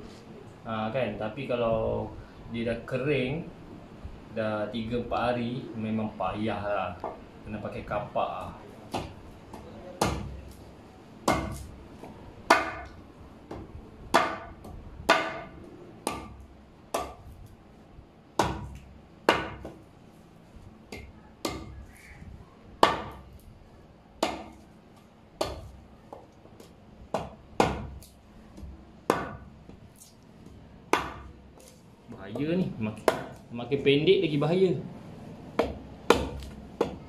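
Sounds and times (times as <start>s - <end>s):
blade chopping root: 11.3s - 11.8s, 25.4s - 25.8s, 27.1s - 29.4s, 35.6s - 37.0s.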